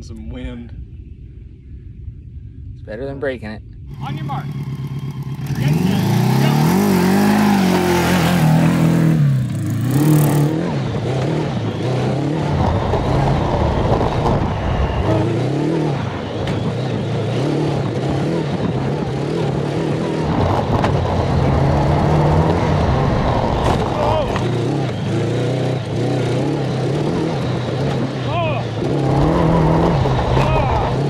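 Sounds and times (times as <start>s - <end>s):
kart engine revving: 3.9s - 31.0s.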